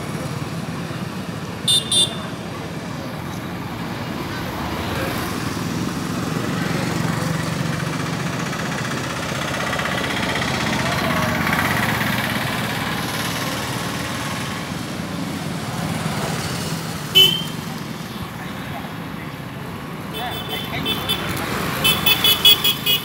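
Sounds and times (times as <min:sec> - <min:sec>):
road traffic noise: 0:00.0 - 0:23.0
scooter and motorbike engines: 0:00.0 - 0:23.0.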